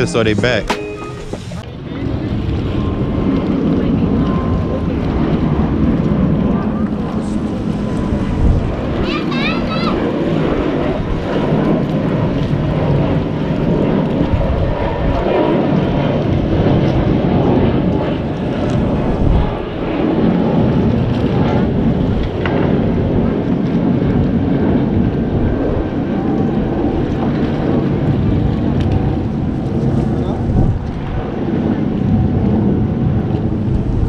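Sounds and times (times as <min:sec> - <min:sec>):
wind buffeting microphone: 0:00.0 - 0:34.0.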